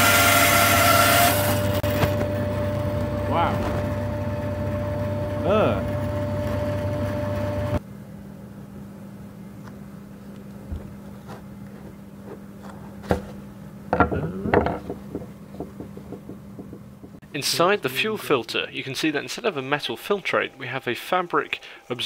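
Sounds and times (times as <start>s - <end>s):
loud steady hum: 0.0s - 9.8s.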